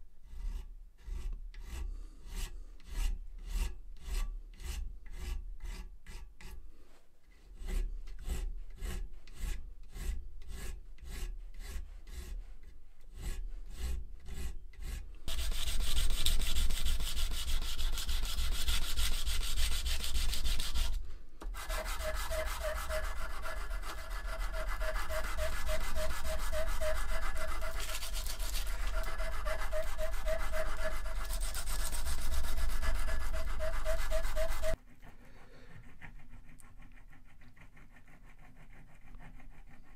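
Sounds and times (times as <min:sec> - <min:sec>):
narrow file scraping metal: 0:00.2 - 0:06.6, 0:07.3 - 0:39.9
flat file rubbing metal: 0:07.6 - 0:12.5, 0:13.2 - 0:21.0, 0:21.6 - 0:39.9.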